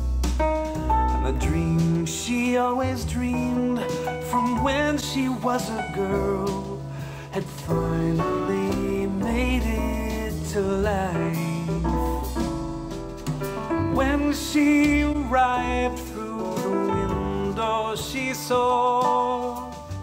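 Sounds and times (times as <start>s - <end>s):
song through studio monitors: 0.0s - 20.0s.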